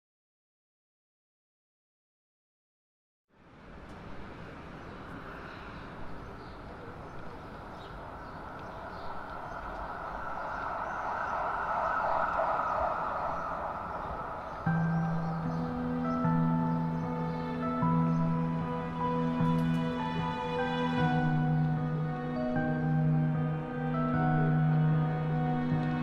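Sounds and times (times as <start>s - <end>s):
rushing ambient noise: 3.4s - 26.0s
sustained musical notes: 9.8s - 26.0s.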